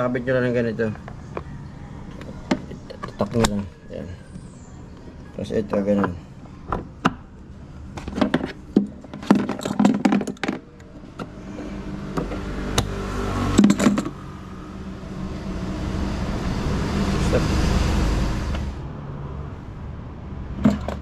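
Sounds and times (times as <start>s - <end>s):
motor vehicle running: 9.4s - 21.0s.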